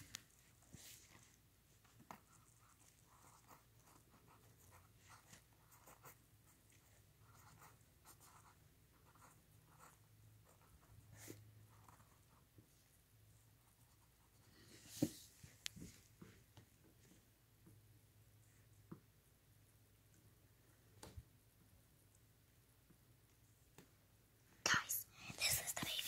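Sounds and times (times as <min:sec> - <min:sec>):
pen scratching on paper: 0:00.3 - 0:12.5, 0:13.6 - 0:15.1.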